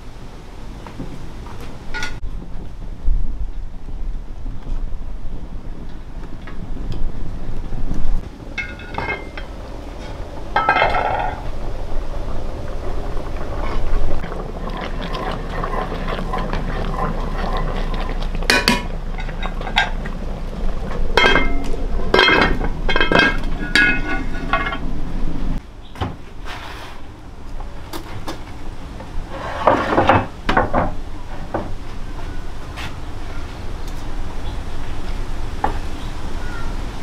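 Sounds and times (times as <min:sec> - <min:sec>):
dishes and utensils clinking: 0:01.9 - 0:02.2, 0:08.6 - 0:11.4, 0:16.9 - 0:20.1, 0:21.2 - 0:25.0.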